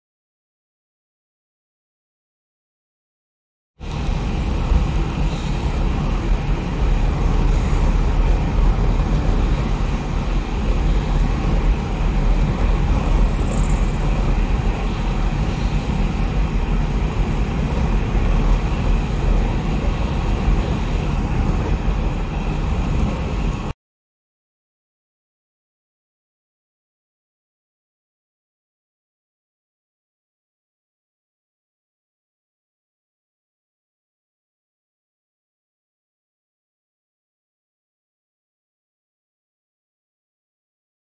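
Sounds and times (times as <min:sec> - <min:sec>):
road and wind noise: 0:03.8 - 0:23.8.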